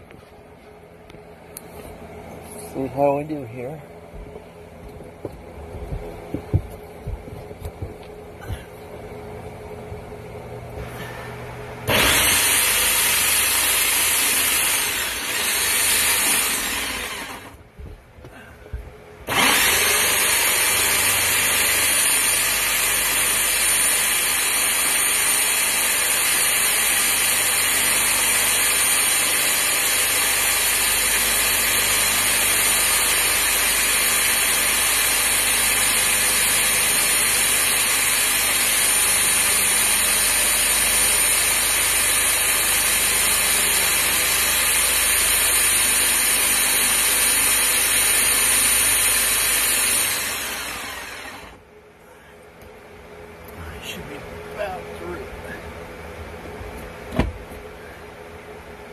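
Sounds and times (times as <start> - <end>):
drill boring through wood: 10.8 - 17.6, 19.3 - 51.6.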